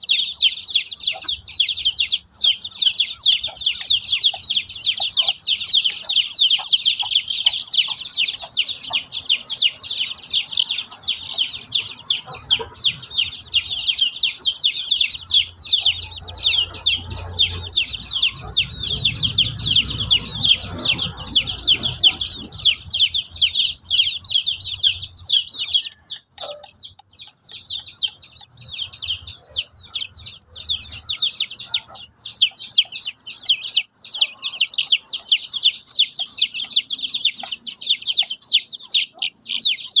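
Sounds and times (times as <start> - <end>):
chicks peeping: 0.0 - 40.0
low rumble: 15.2 - 24.0.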